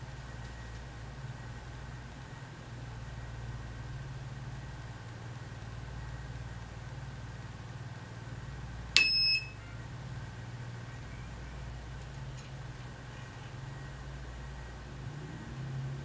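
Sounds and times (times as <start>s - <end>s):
low electrical hum: 0.0s - 16.0s
short high electronic beep: 9.0s - 9.7s.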